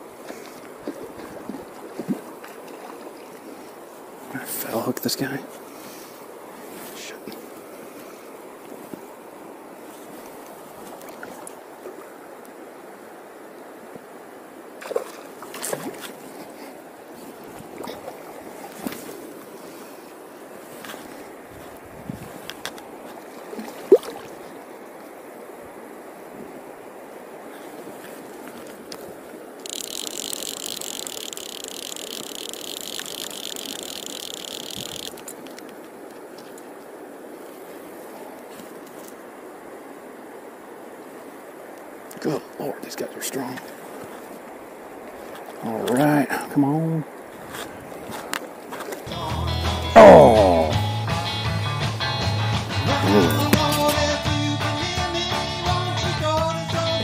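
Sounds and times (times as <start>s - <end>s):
river water running: 0.0s - 57.0s
fish splashing at surface: 23.5s - 24.4s
fly reel drag buzzing: 29.6s - 35.5s.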